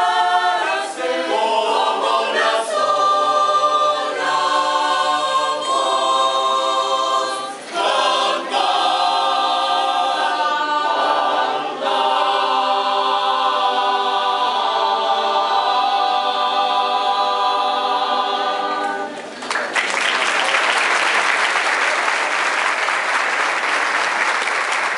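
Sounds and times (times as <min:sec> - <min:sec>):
choir singing a cappella: 0:00.0 - 0:19.3
audience applause: 0:19.2 - 0:24.9.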